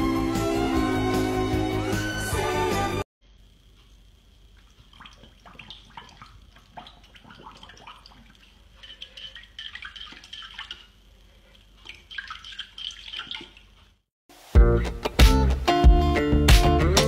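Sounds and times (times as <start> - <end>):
water splashing in a bowl: 4.5 - 14.0.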